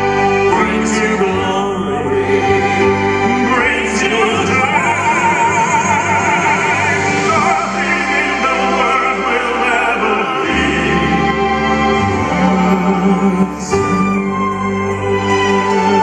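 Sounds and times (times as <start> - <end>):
male vocal quartet singing: 0.0 - 16.0
orchestra of strings and keyboard: 0.0 - 16.0.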